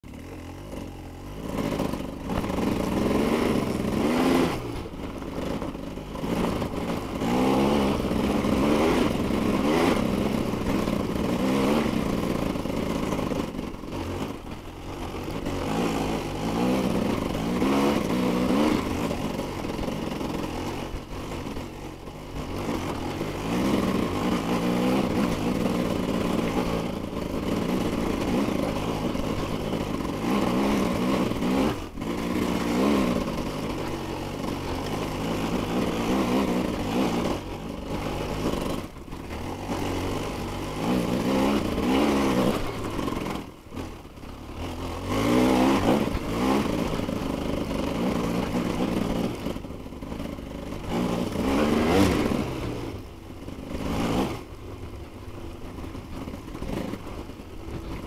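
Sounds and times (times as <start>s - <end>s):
dirt bike engine revving: 0.1s - 58.0s.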